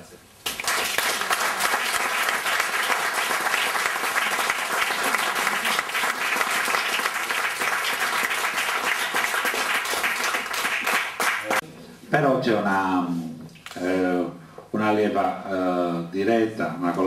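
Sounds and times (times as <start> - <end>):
audience applauding: 0.4 - 11.6.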